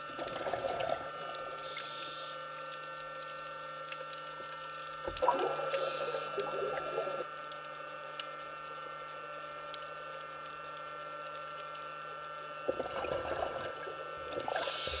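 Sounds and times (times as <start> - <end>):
underwater bubbles gurgling: 0.0 - 1.8, 3.9 - 7.3, 12.5 - 15.0
steady hum: 0.0 - 15.0.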